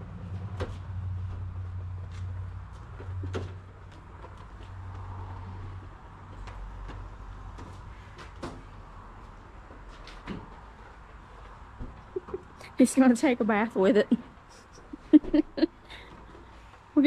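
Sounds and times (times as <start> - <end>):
low hum of car wash equipment: 0.0 - 13.3.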